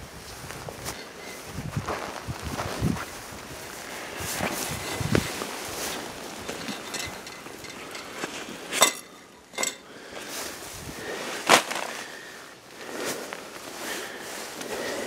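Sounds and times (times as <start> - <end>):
small hard objects clinking: 4.6 - 10.0.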